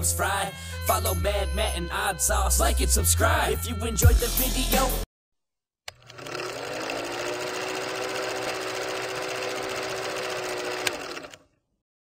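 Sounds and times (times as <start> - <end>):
film projector clattering: 5.9 - 11.4.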